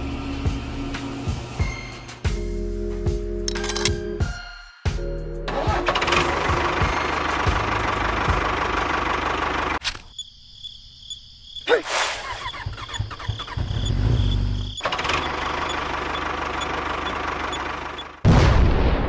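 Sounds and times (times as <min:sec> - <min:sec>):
engine-like mechanical noise: 0:03.5 - 0:04.0, 0:12.2 - 0:18.2.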